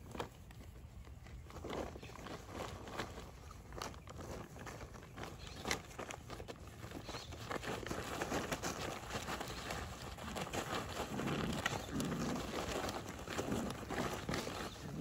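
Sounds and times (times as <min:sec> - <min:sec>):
paws rustling and pattering on tarp: 0:00.0 - 0:15.0
puppy growls: 0:09.9 - 0:15.0.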